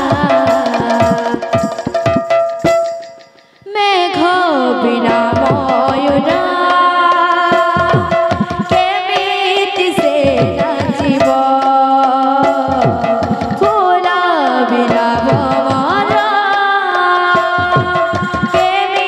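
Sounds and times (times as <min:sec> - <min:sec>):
person singing melody: 0:00.0 - 0:02.3, 0:03.7 - 0:19.0
barrel drums beating low strokes: 0:07.8 - 0:08.9, 0:17.6 - 0:18.6.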